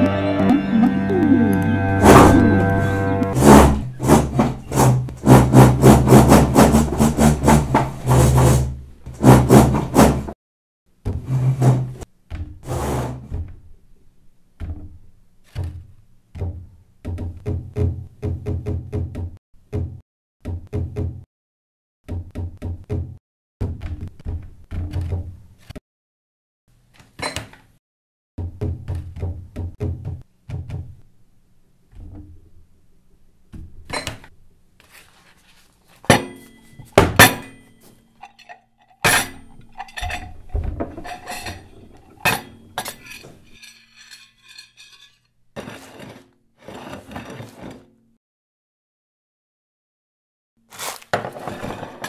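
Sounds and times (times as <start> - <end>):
clinks and knocks: 36.1 - 45.3.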